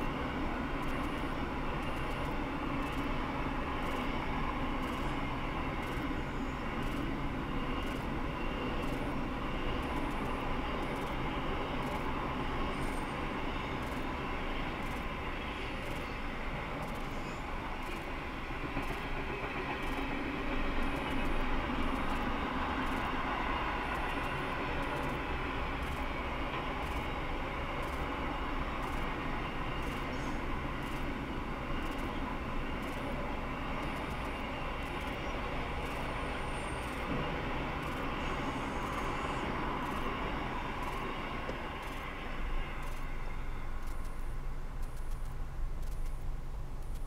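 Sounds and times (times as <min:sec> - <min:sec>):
train wheels rumbling on rails: 0:00.0 - 0:47.0
regular ticks: 0:00.8 - 0:03.1, 0:04.8 - 0:05.1, 0:05.8 - 0:06.1, 0:06.8 - 0:07.1, 0:11.8 - 0:12.1, 0:13.8 - 0:14.1, 0:14.8 - 0:15.1, 0:15.8 - 0:16.1, 0:16.8 - 0:17.2, 0:17.8 - 0:18.1, 0:18.8 - 0:19.1, 0:19.8 - 0:20.1, 0:20.8 - 0:23.1, 0:23.9 - 0:25.2, 0:25.8 - 0:27.1, 0:27.8 - 0:28.2, 0:28.8 - 0:29.2, 0:29.8 - 0:30.2, 0:30.8 - 0:31.1, 0:31.8 - 0:32.1, 0:32.8 - 0:33.2, 0:33.8 - 0:36.1, 0:37.8 - 0:38.1, 0:39.8 - 0:40.1, 0:40.8 - 0:42.1, 0:42.8 - 0:43.1, 0:43.8 - 0:47.0.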